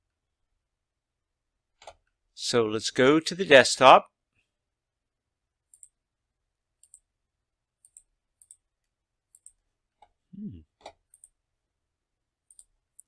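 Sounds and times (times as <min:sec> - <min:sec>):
computer mouse clicking: 0:05.7 - 0:06.0, 0:06.8 - 0:07.1, 0:07.8 - 0:10.2, 0:10.8 - 0:11.4, 0:12.4 - 0:13.0.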